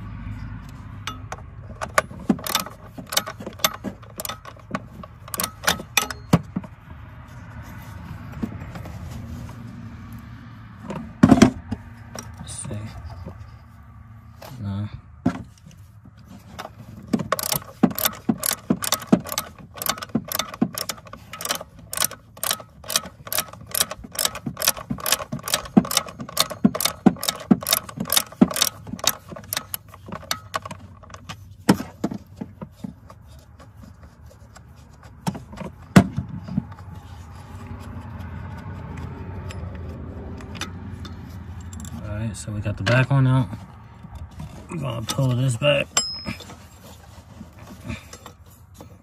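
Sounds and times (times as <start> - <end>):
hand ratchet clicking: 1.9 - 6.3, 17.3 - 31.2.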